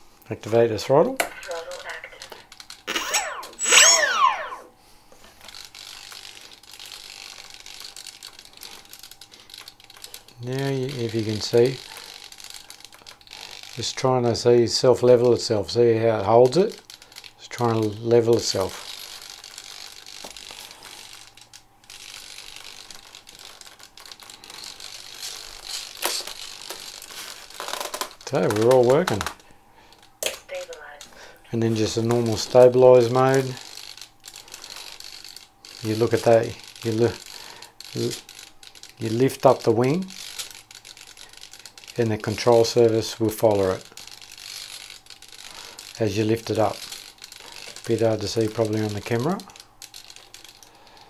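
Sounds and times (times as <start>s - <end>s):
servos chattering and buzzing: 1.4s - 4.7s, 31.9s - 50.6s
electric motor whine: 2.9s - 4.7s.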